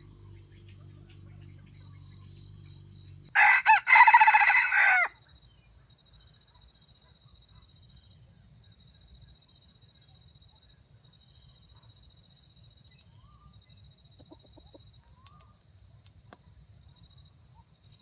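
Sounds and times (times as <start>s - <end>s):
rooster crowing: 3.3s - 5.2s.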